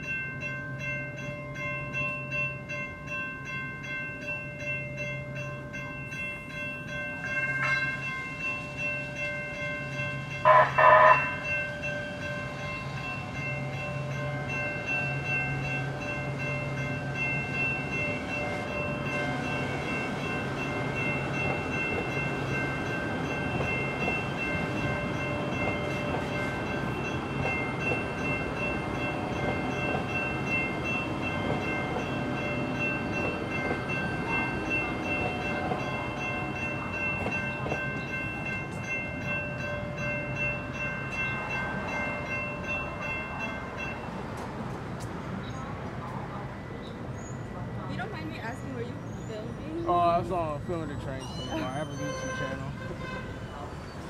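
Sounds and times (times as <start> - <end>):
light rail train passing: 0.0 - 54.0
railroad crossing bells: 0.0 - 54.0
loud horn: 10.5 - 11.4, 51.7 - 53.5.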